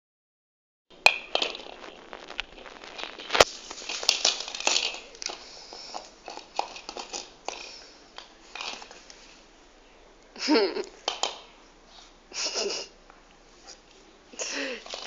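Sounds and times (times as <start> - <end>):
dog chewing plastic ball: 2.4 - 7.8.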